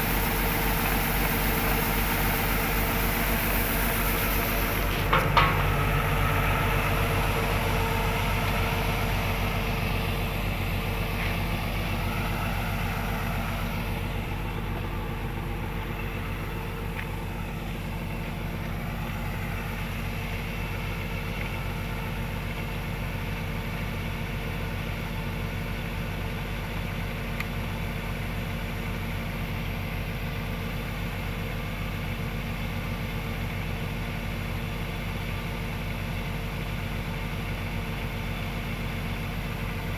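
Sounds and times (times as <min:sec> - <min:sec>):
grain pouring hiss: 0:00.0 - 0:08.2
diesel engine running: 0:00.0 - 0:39.9.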